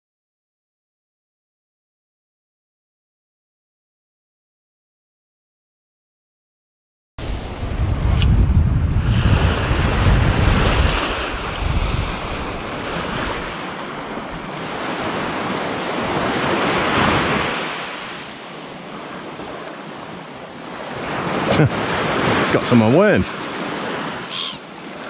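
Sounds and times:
wind buffeting microphone: 7.2s - 17.6s
waves washing up beach: 7.2s - 25.0s.

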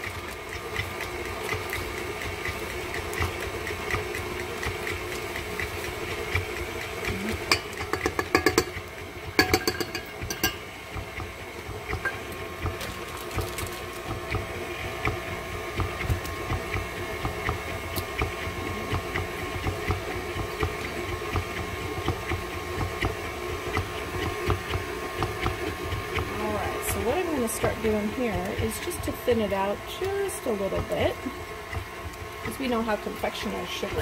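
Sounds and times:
electric stand mixer running: 0.0s - 34.0s.

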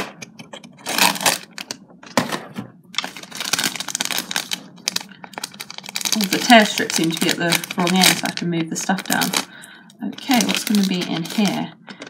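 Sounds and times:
cardboard packaging prying open: 0.8s - 1.5s
crinkly plastic bag crackling: 0.8s - 1.8s, 3.0s - 12.0s.

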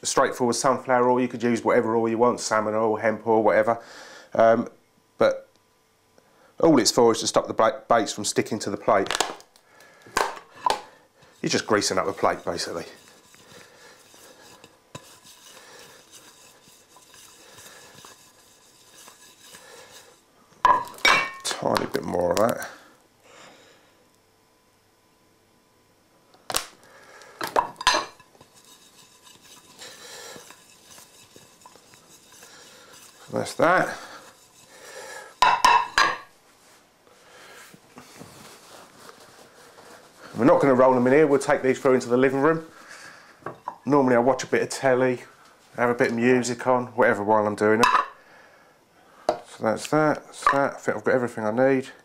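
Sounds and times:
fingers wiping ceramic plate: 11.4s - 20.2s, 28.3s - 35.4s
ceramic plate clinking: 20.7s - 21.5s, 27.6s - 28.3s, 35.4s - 36.3s.

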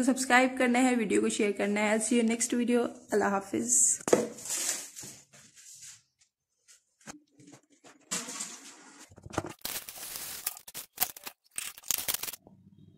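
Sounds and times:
packaging rustling: 9.4s - 12.4s.

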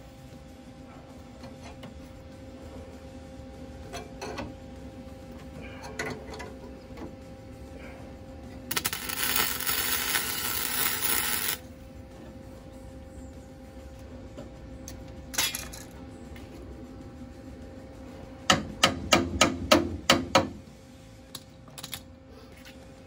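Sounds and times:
welder crackling and spitting: 8.7s - 11.6s.

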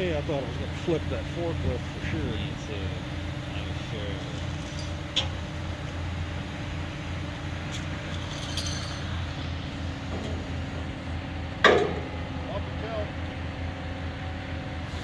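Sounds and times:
forklift engine running: 0.0s - 15.0s
metal clinking: 4.3s - 5.3s, 7.7s - 9.1s.

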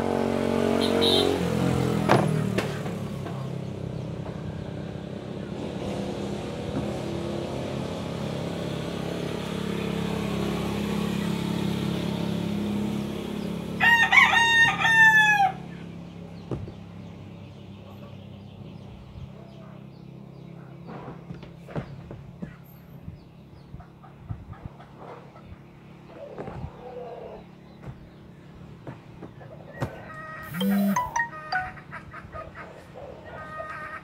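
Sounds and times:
passing vehicle hum: 0.0s - 21.3s
rooster crowing: 13.8s - 15.7s.

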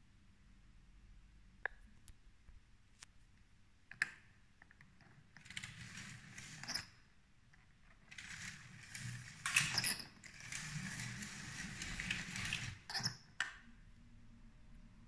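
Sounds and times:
toy train wheels rattling on track: 5.4s - 6.9s, 8.0s - 13.2s.

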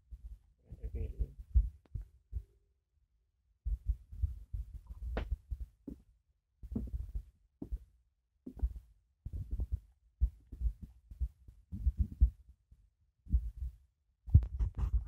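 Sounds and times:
footsteps thudding: 5.1s - 6.0s, 6.7s - 7.8s, 8.5s - 9.8s.

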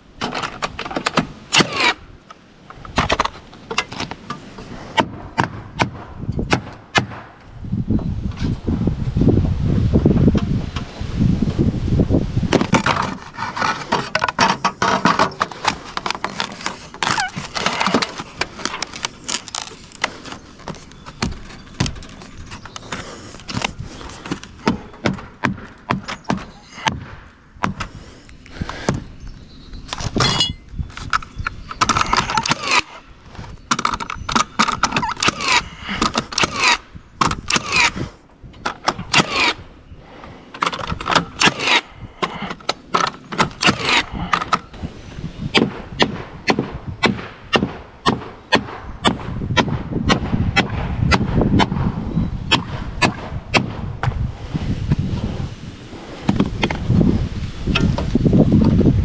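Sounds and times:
board and metal flashing scraping: 0.2s - 2.0s, 12.6s - 24.5s, 38.7s - 45.4s.

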